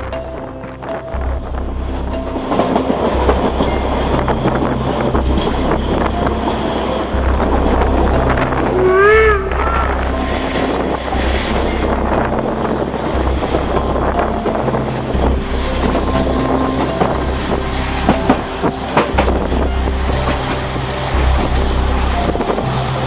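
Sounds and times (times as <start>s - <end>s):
wheels rumbling on track: 0.0s - 23.0s
wind on microphone: 0.0s - 23.0s
short rising and falling tone: 8.1s - 11.6s.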